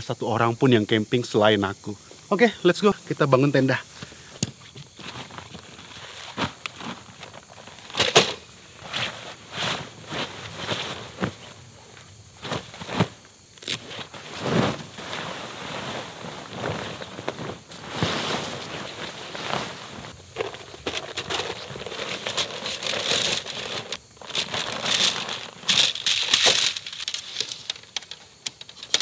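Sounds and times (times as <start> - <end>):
tent fabric rustling: 3.1 - 28.1
footsteps on dry leaves: 12.4 - 27.5.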